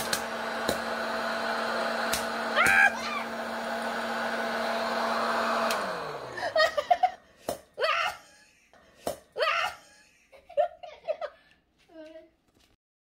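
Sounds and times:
motor winding down: 0:00.0 - 0:06.8
popcorn maker fan motor running: 0:00.0 - 0:06.9
popcorn kernels popping: 0:02.0 - 0:02.9.

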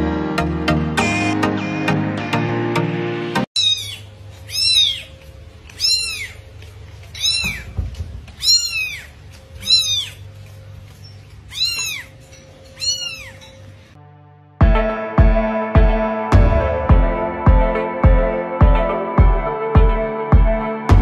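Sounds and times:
cat meowing: 0:03.6 - 0:10.3, 0:11.4 - 0:13.7.

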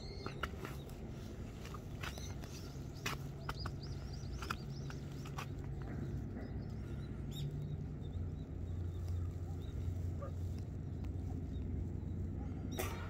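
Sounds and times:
songbirds chirping: 0:00.0 - 0:13.0
steady low rumble: 0:00.0 - 0:13.0.

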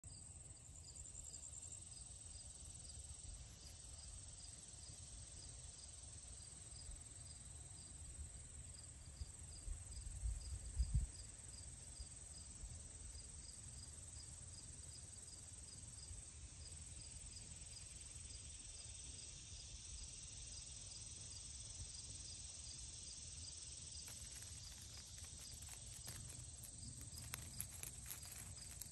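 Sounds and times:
crickets chirping: 0:00.1 - 0:28.9
low bumps: 0:24.1 - 0:28.9.

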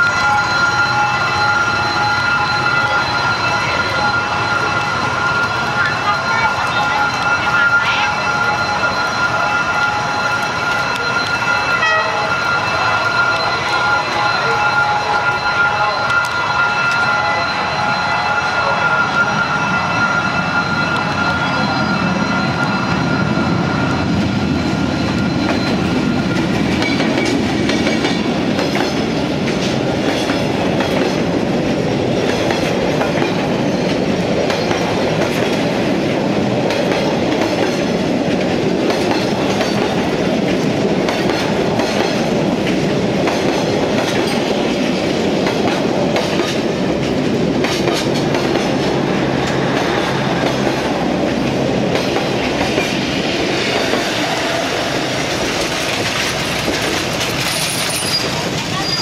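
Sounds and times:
diesel locomotive passing: 0:00.0 - 0:59.0
train wheels rumbling on rails: 0:00.0 - 0:59.0
wheels clacking over rail joints: 0:25.0 - 0:59.0.

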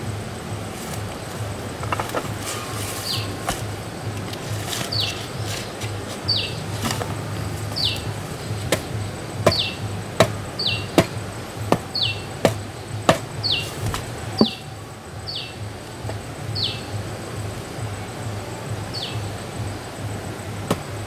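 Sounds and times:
bird falling call: 0:00.9 - 0:15.6.

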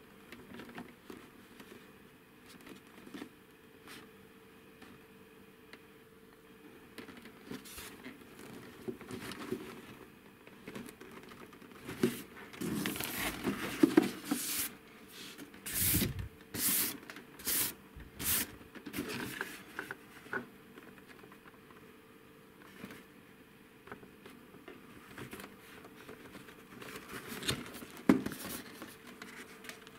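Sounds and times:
toy scraping against cardboard box: 0:15.7 - 0:16.9.

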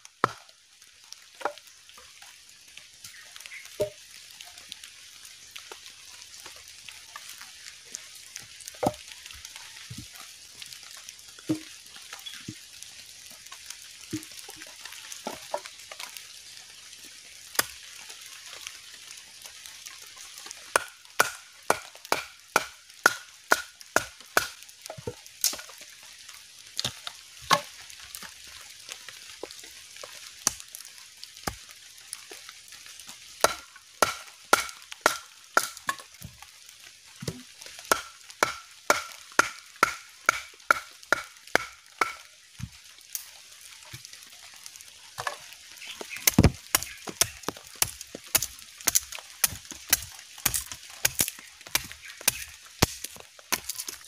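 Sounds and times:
blade chopping wood: 0:20.8 - 0:24.6, 0:33.4 - 0:36.0, 0:37.9 - 0:42.2, 0:46.1 - 0:54.0.

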